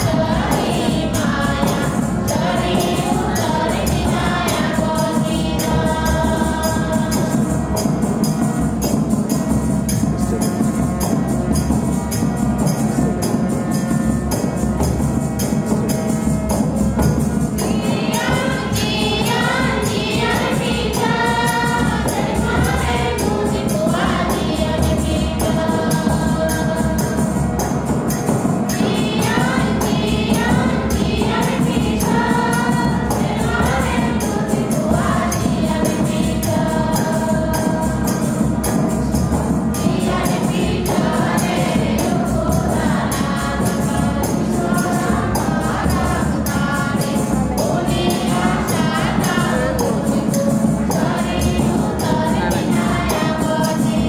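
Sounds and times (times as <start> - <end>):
choir and congregation singing hymn: 0.0 - 10.7, 17.5 - 54.0
hand percussion beat: 0.0 - 54.0
sustained instrumental accompaniment: 0.0 - 54.0.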